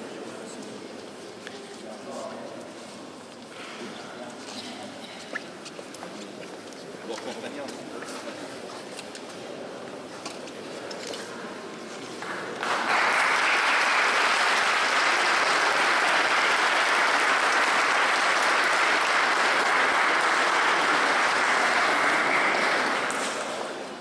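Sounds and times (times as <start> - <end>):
crowd applauding: 12.2 - 24.0.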